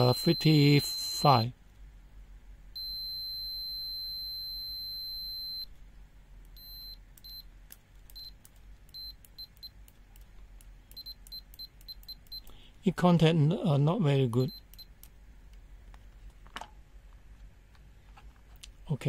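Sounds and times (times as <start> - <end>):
multimeter continuity beeps: 0.0 - 1.6, 2.8 - 5.7, 6.5 - 7.5, 8.1 - 9.9, 10.9 - 12.6, 14.3 - 15.1.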